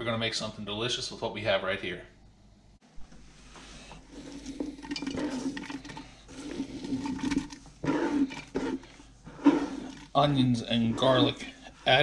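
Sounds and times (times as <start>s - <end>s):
scraping on plastic cutting board: 4.1s - 11.5s.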